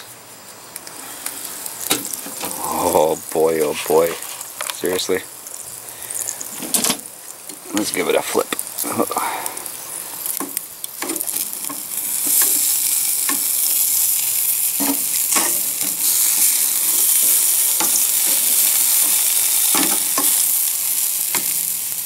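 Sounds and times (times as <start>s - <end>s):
meat sizzling on grill: 0.0s - 22.0s.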